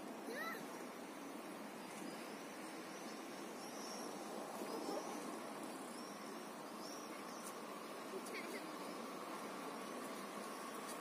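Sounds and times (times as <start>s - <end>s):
faint outdoor background noise: 0.0s - 11.0s.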